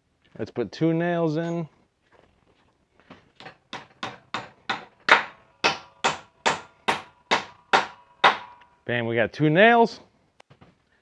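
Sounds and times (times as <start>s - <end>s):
hammer driving nails into wood: 3.4s - 8.7s.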